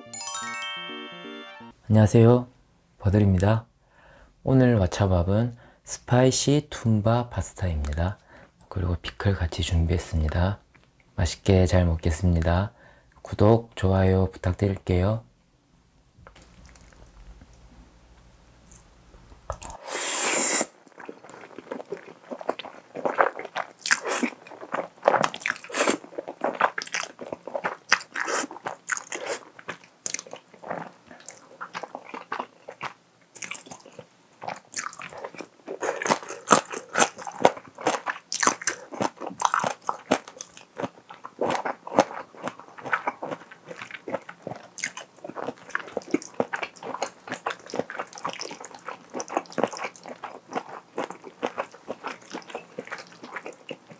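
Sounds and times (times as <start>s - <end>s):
wet chewing with smacking: 16.3s - 17.1s, 20.7s - 53.9s
slurping noodles: 19.6s - 26.6s.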